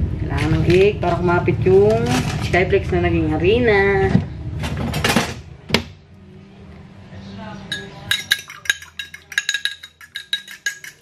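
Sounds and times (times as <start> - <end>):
spoon clinking against bowl: 7.7 - 11.0.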